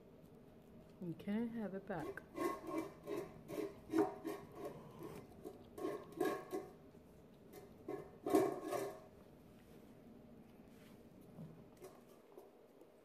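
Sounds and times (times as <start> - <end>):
dog chewing raw meat: 2.2 - 8.6.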